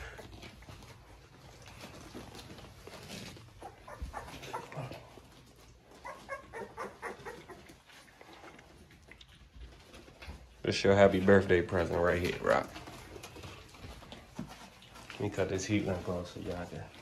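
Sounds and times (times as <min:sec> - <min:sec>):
puppies squeaking and whimpering: 0:01.6 - 0:08.9.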